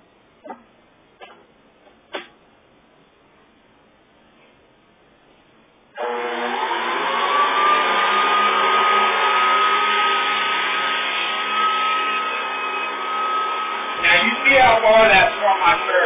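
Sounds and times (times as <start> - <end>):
vacuum cleaner motor whining: 6.0 - 16.0.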